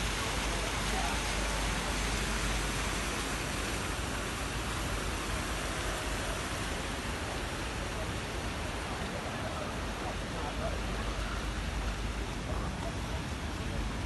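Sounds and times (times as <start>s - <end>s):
rain falling on wet paving: 0.0s - 14.0s
water running down fountain: 0.0s - 14.0s.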